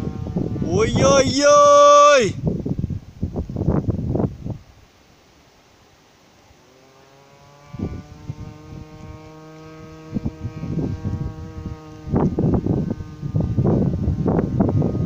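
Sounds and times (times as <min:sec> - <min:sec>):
kite hummer buzzing: 0:00.0 - 0:02.4, 0:06.5 - 0:15.0
wind buffeting microphone: 0:00.0 - 0:04.8, 0:07.7 - 0:15.0.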